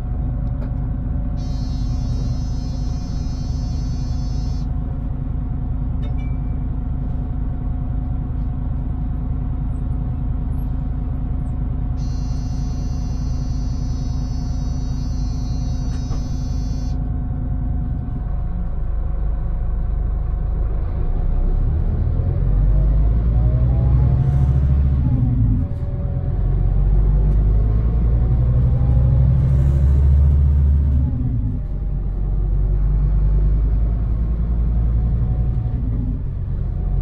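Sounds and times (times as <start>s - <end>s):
bus engine idling: 0.0s - 20.8s
high electronic buzz: 1.4s - 4.7s, 12.0s - 17.0s.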